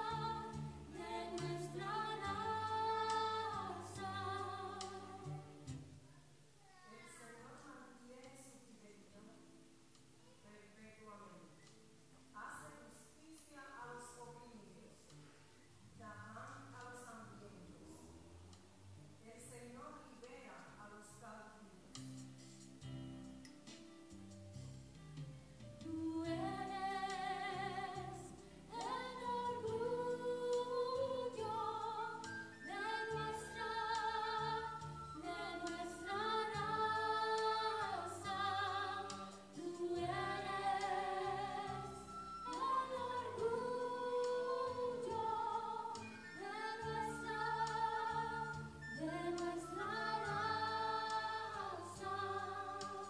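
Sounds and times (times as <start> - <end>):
girls singing together: 0.0 - 5.6, 25.8 - 53.0.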